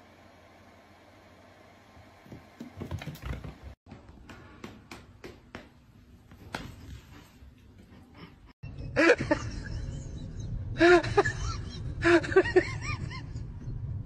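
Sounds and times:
steady low rumble: 0:09.3 - 0:14.0.

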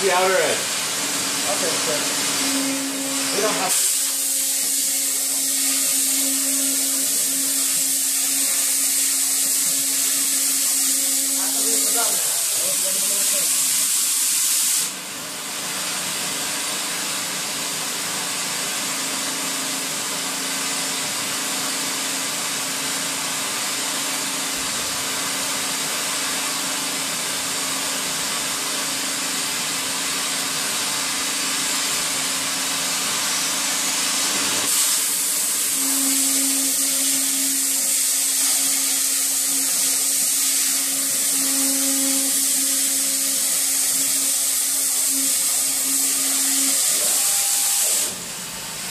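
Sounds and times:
cutting torch hissing: 0:00.0 - 0:15.0, 0:33.1 - 0:48.2.

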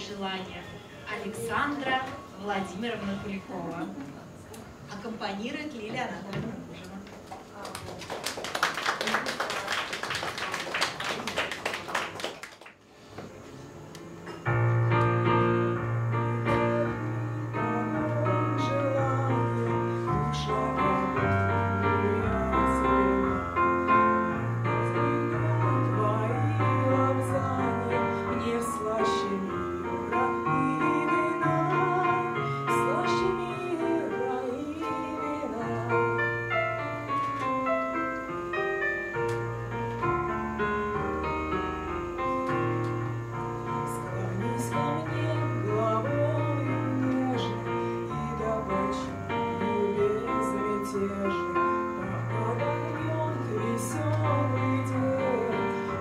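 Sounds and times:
applause: 0:07.4 - 0:12.9
piano accompaniment: 0:14.0 - 0:56.0
woman singing into a microphone: 0:16.3 - 0:23.6, 0:24.6 - 0:36.6, 0:43.7 - 0:56.0.

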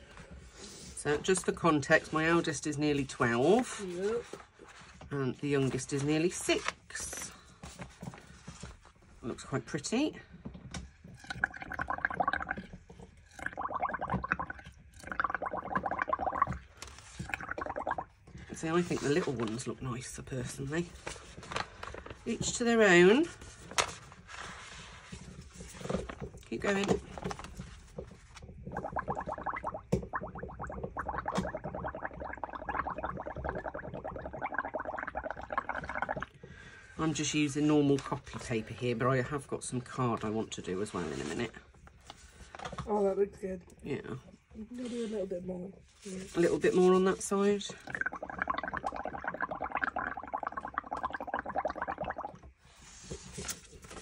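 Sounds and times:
blowing bubbles through a straw: 0:11.0 - 0:19.0, 0:24.9 - 0:36.6, 0:47.8 - 0:53.4.

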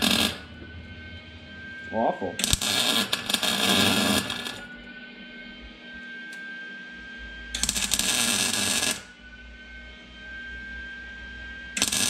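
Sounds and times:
welding arc crackling: 0:00.0 - 0:00.5, 0:02.4 - 0:04.6, 0:07.6 - 0:09.1, 0:11.8 - 0:12.0.

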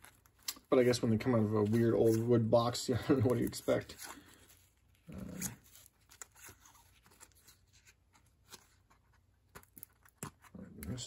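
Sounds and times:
cards clicking and rustling: 0:03.1 - 0:11.0.

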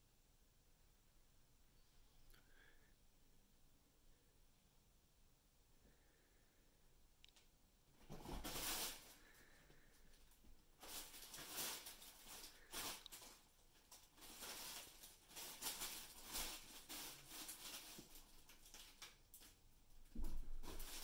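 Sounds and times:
fabric tunnel rustling and crinkling: 0:08.0 - 0:09.5, 0:10.2 - 0:21.0.

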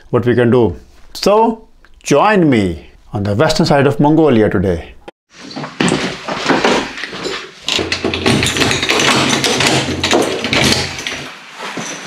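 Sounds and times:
rustle of handling: 0:11.1 - 0:12.0.

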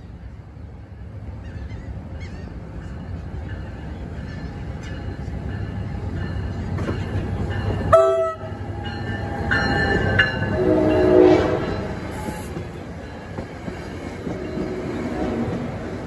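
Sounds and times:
train wheels rumbling on rail: 0:00.0 - 0:16.0
locomotive horn: 0:07.9 - 0:08.8, 0:10.1 - 0:12.5.

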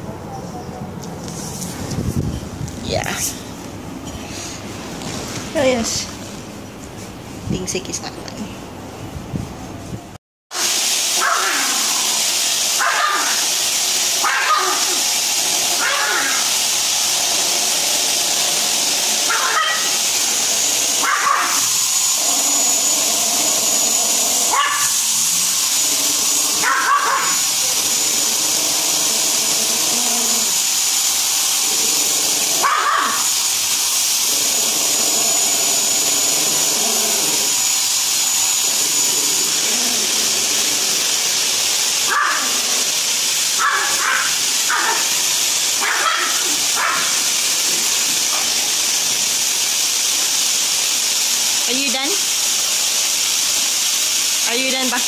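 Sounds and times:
vacuum cleaner running: 0:00.9 - 0:07.5, 0:10.5 - 0:55.0
small dog barking: 0:11.2 - 0:11.7, 0:12.8 - 0:13.4, 0:14.2 - 0:15.0, 0:15.8 - 0:16.5, 0:19.3 - 0:20.0, 0:21.0 - 0:21.6, 0:24.5 - 0:25.0, 0:26.6 - 0:27.4, 0:32.6 - 0:33.2, 0:42.1 - 0:42.6, 0:43.6 - 0:45.1, 0:45.8 - 0:47.2.

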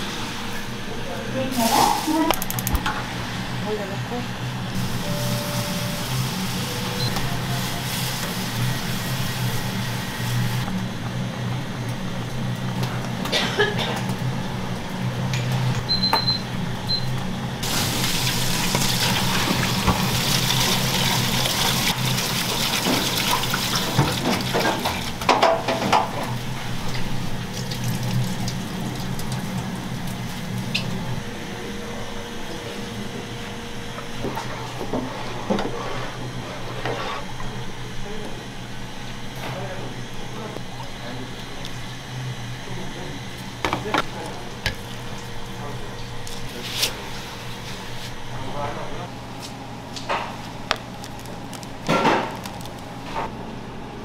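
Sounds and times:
steady low hum: 0:00.0 - 0:19.5.

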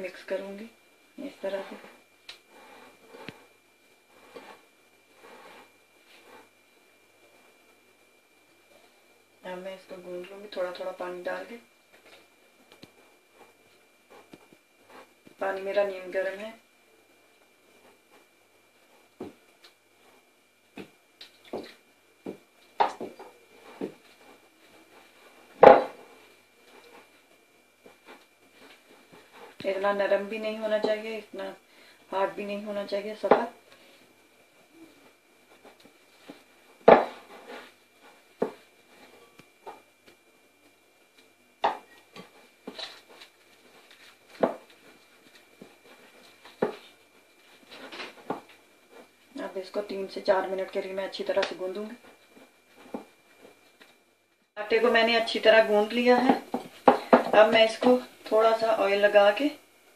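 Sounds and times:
faint high whine: 0:00.0 - 0:59.9.

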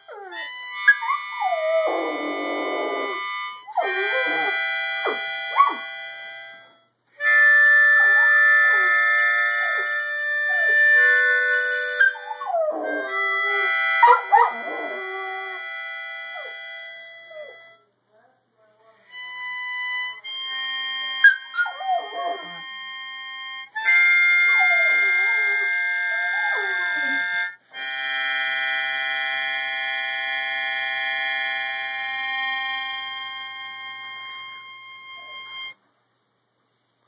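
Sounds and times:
harmonica chords: 0:00.0 - 0:18.0, 0:18.8 - 0:35.9
dog howling: 0:01.0 - 0:03.2, 0:03.8 - 0:05.8, 0:08.0 - 0:09.0, 0:12.0 - 0:15.7, 0:21.2 - 0:22.6.

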